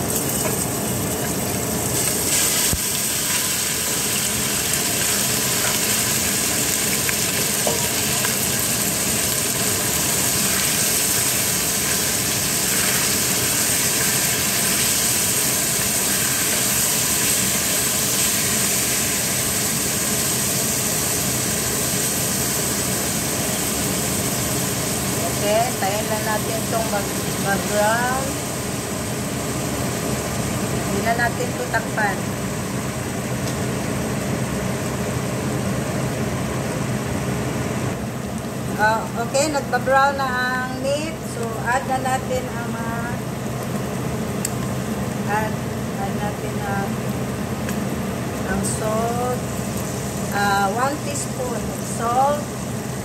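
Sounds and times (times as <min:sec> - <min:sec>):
beef sizzling in oil: 0:00.0 - 0:33.9, 0:47.0 - 0:53.0.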